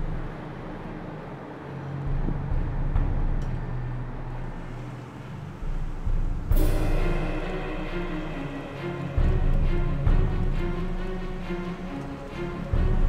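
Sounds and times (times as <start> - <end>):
low traffic rumble: 0.0 - 13.0
steady low hum: 0.0 - 13.0.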